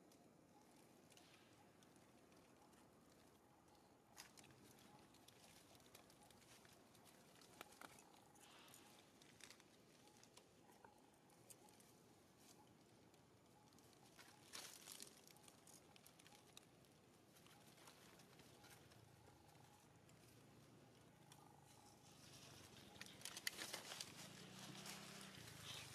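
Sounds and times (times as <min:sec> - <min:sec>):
rustling of dry leaf litter: 0:03.1 - 0:19.0, 0:21.7 - 0:25.9.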